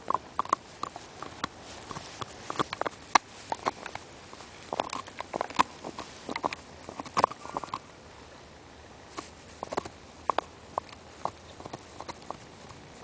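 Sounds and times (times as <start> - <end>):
dog chewing a bone: 0.0 - 7.8, 9.2 - 13.0.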